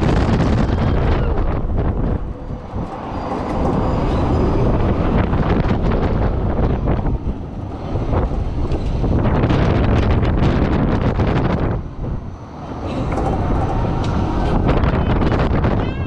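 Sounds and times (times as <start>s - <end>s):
ride mechanical rumble: 0.0s - 16.0s
wind buffeting microphone: 0.0s - 16.0s.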